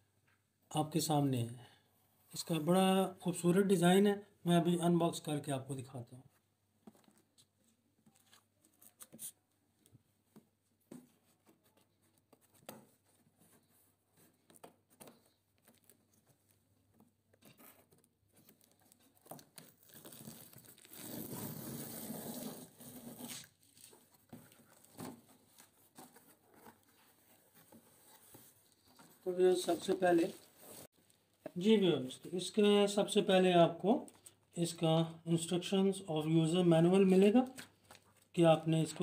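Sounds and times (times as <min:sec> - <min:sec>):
tape and cardboard tearing: 0:17.4 - 0:26.8.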